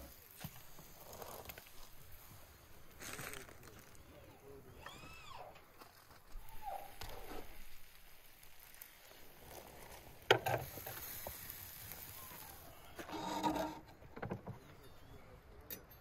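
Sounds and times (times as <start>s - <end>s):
metal skewers scraping and clinking: 12.9s - 15.1s.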